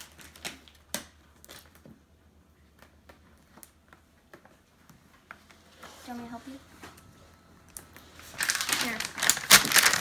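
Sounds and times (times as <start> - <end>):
low steady hum: 0.0 - 10.0.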